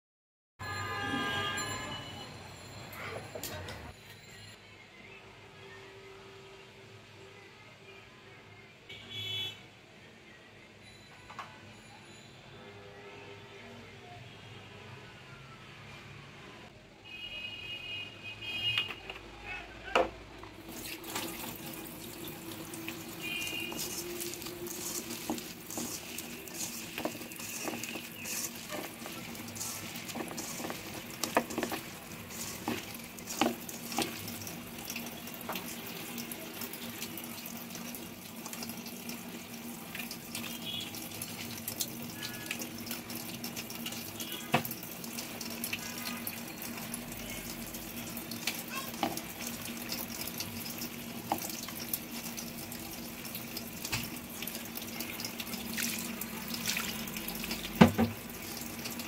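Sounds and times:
hands mixing wet food: 20.5s - 59.0s.

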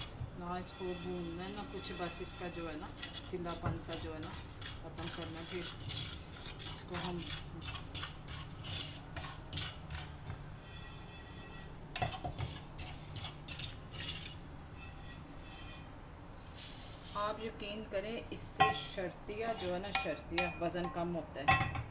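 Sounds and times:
spatula scraping seeds in frying pan: 0.0s - 17.4s, 18.5s - 20.9s.

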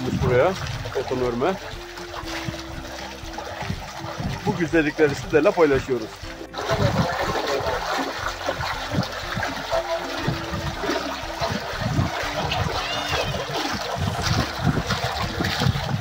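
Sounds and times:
spring water bubbling and splashing: 0.0s - 16.0s.

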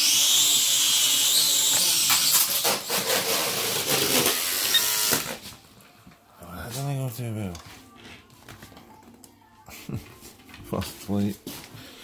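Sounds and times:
toy drone motors whining: 0.0s - 5.4s.

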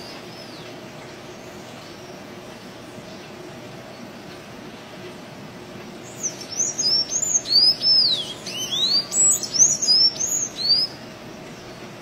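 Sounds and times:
steady low hiss: 0.0s - 12.0s.

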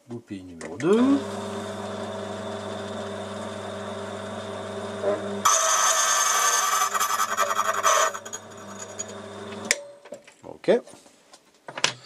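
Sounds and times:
machine motor humming: 0.9s - 9.7s
cutter grinding key blank: 1.0s - 9.8s.

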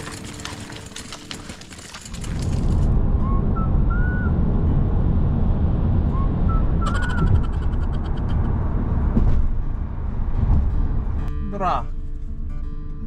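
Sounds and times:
light rattles: 0.0s - 2.9s
vehicle rumble: 0.0s - 13.0s
wind rushing over microphone: 2.4s - 11.2s.

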